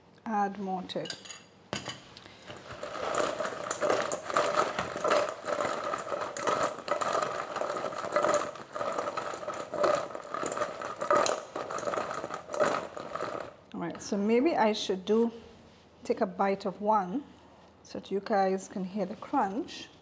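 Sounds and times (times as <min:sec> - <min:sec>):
chicken wings scraping in steel bowl: 0:02.5 - 0:13.6.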